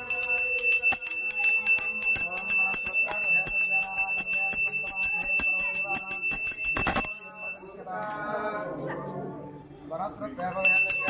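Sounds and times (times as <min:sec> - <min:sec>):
brass hand bell ringing: 0:00.0 - 0:07.6, 0:10.6 - 0:11.0.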